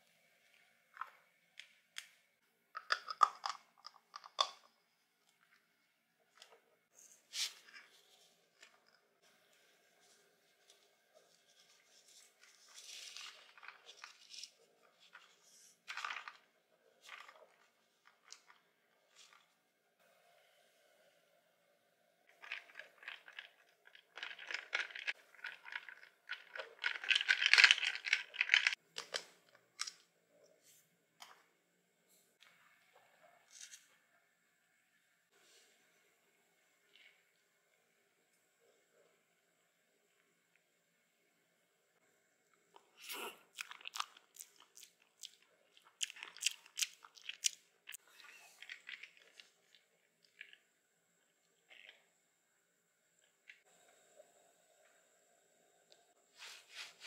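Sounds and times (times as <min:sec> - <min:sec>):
ice rattling in plastic ball: 0:12.5 - 0:19.5, 0:22.3 - 0:29.2.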